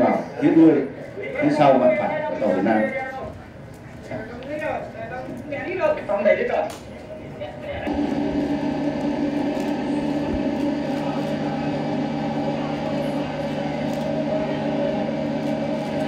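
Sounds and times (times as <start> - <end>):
ship engine droning: 7.9 - 16.0.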